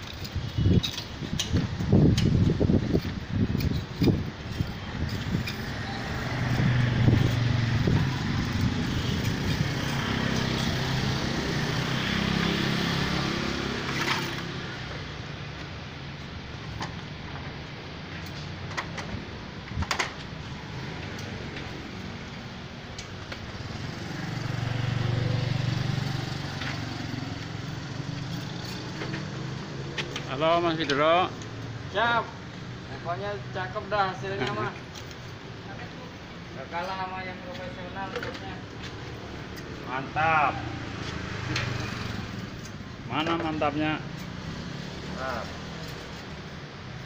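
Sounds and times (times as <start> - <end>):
vehicle engine passing: 5.2 - 15.0, 23.5 - 30.7, 38.8 - 42.7.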